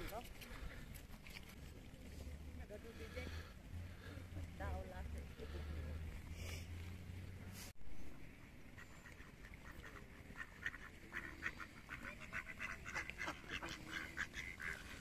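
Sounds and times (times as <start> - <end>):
ducks quacking: 8.7 - 15.0.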